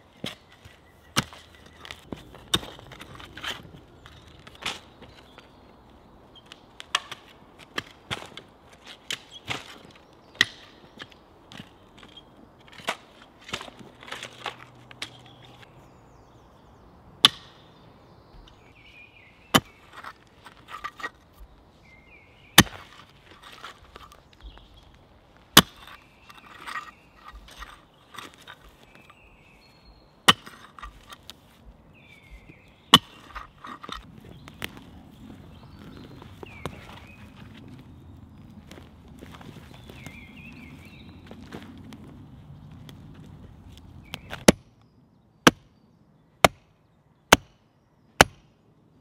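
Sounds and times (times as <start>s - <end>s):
mattock chopping into soil: 0.2s - 3.7s, 19.5s - 21.1s, 22.5s - 24.6s, 25.5s - 29.1s, 30.2s - 31.4s, 32.4s - 34.8s, 48.2s - 48.5s
digging tools scraping and knocking: 19.5s - 21.4s, 22.6s - 24.2s, 25.6s - 29.2s, 30.3s - 31.5s, 32.9s - 34.1s.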